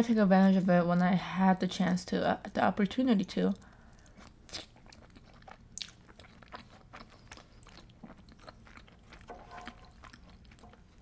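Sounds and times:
chewing with wet clicks: 0:03.6 - 0:11.0.

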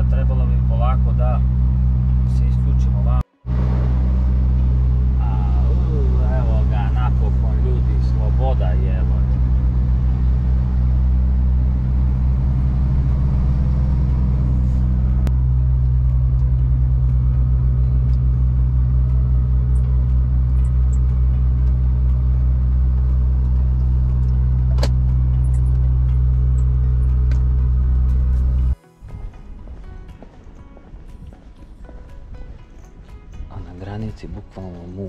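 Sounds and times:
truck diesel engine droning: 0:00.0 - 0:29.7.

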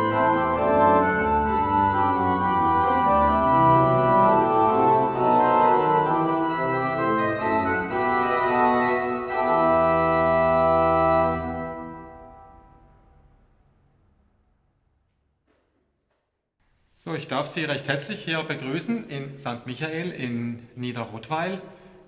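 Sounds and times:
pipe organ playing: 0:00.0 - 0:13.0.

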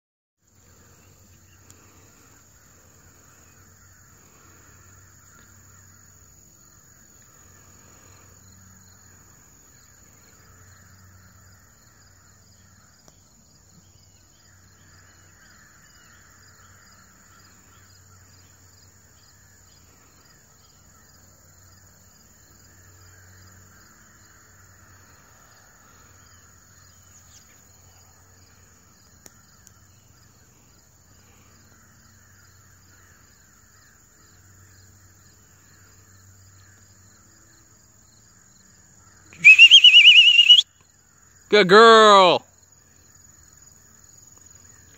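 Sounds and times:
insects: 0:00.4 - 0:44.9
birds calling: 0:39.4 - 0:40.6.

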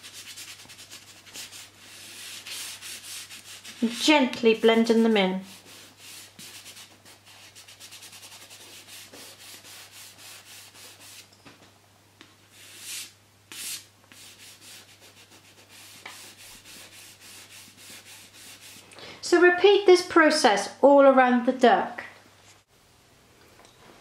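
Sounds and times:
pastel rubbing on paper: 0:00.0 - 0:11.3, 0:12.5 - 0:18.8.

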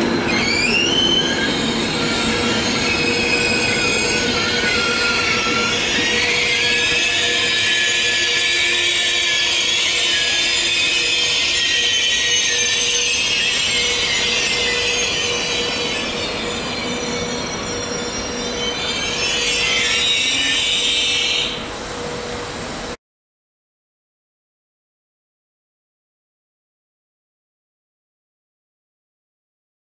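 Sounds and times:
train brakes squealing: 0:00.0 - 0:22.4.

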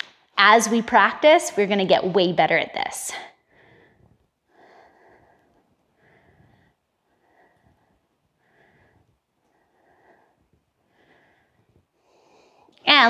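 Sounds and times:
soft breathing through nose: 0:03.4 - 0:12.8.

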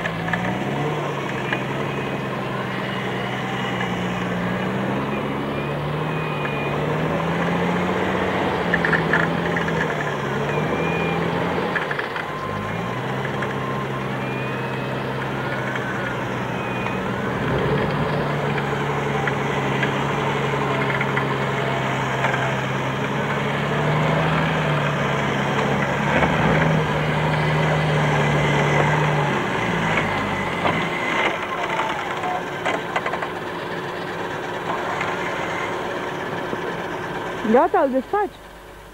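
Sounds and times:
off-road vehicle engine running: 0:00.0 - 0:38.9.

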